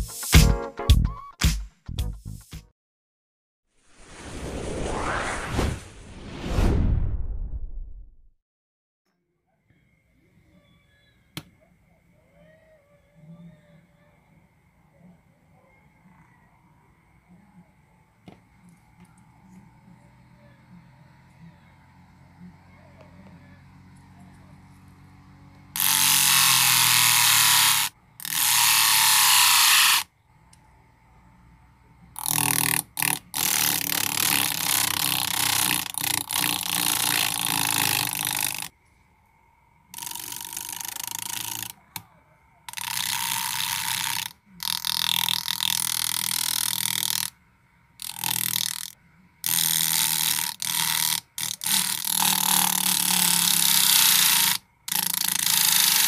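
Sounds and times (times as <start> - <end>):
faint motor hum: 9.8 - 56.0
metal blade grinding on sandpaper: 25.8 - 30.1.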